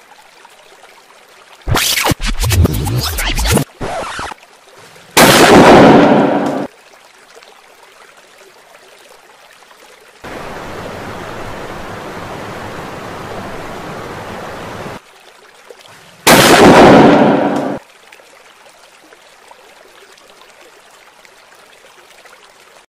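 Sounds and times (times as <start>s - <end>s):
water rushing over a weir: 1.6s - 4.4s, 10.2s - 15.0s
firecracker blasts: 5.2s - 6.7s, 16.3s - 17.8s.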